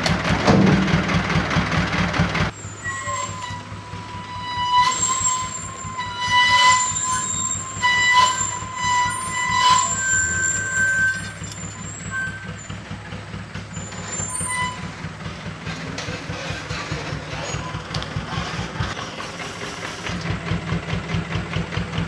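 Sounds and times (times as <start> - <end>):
diesel engine idling: 0.0 - 22.0
diesel truck engine running: 0.0 - 22.0
high squeal: 2.5 - 15.1.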